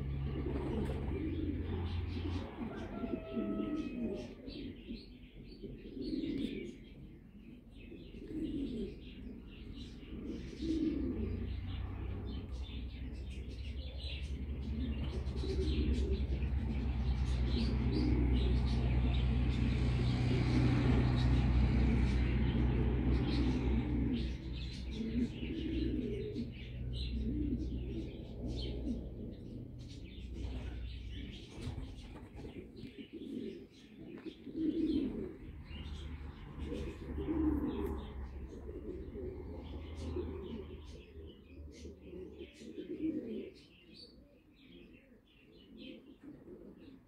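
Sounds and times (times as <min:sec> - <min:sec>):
pigeons cooing: 0:00.0 - 0:47.0
low steady rumble: 0:11.3 - 0:33.0.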